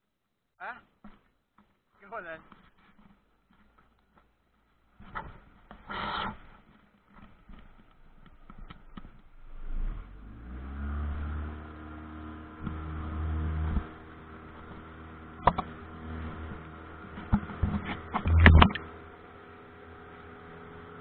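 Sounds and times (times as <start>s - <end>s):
outboard motor running: 8.6s - 21.0s.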